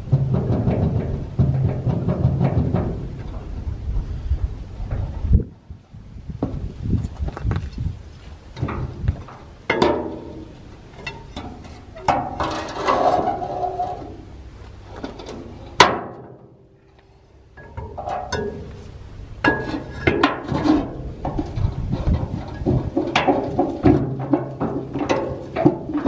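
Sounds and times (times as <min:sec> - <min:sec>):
metal rattling: 0:00.0 - 0:03.8, 0:08.5 - 0:16.6, 0:19.4 - 0:26.0.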